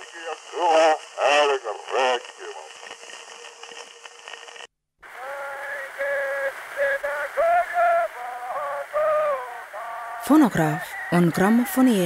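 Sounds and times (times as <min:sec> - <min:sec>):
faint steady hum: 0:00.0 - 0:12.0
recording hiss and crackle: 0:00.0 - 0:12.0
choir singing held notes: 0:05.1 - 0:11.7.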